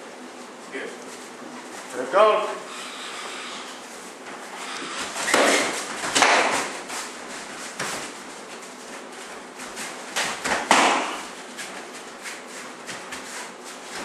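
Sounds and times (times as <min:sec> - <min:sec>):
gloves and kicks hitting: 0:05.2 - 0:06.9, 0:10.1 - 0:11.4.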